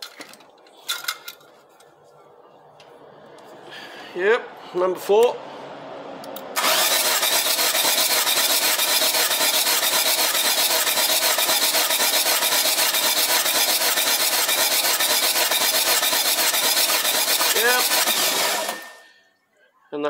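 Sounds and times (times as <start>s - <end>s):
diesel engine cranking: 5.0s - 19.1s.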